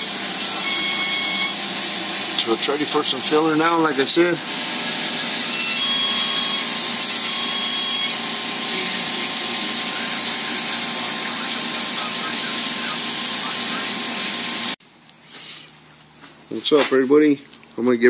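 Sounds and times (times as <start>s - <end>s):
loud rushing hiss of air: 1.6s - 7.0s.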